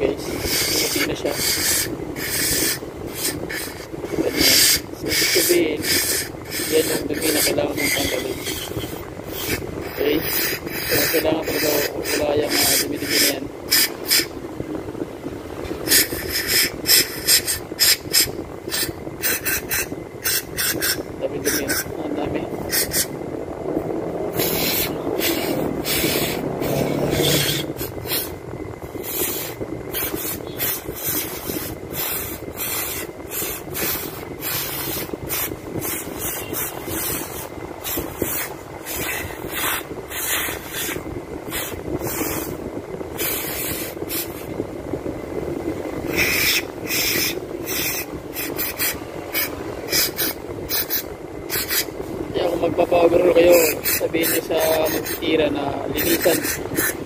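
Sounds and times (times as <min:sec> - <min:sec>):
low background hum: 0:00.0 - 0:57.0
aerosol spray hissing bursts: 0:00.4 - 0:14.3, 0:24.4 - 0:28.3, 0:29.0 - 0:42.5, 0:43.2 - 0:44.5, 0:46.1 - 0:51.9, 0:53.5 - 0:55.2, 0:56.0 - 0:57.0.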